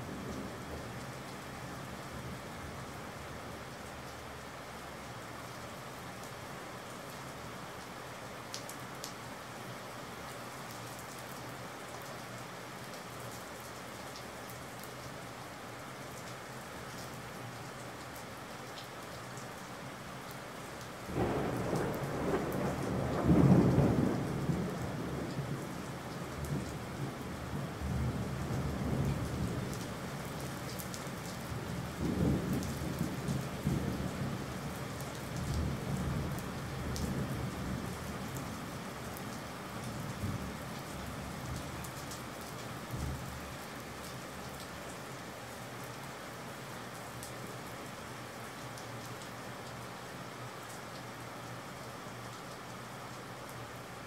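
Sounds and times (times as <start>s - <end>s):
rain falling: 0.0s - 54.0s
thunder rumbling: 21.1s - 25.7s.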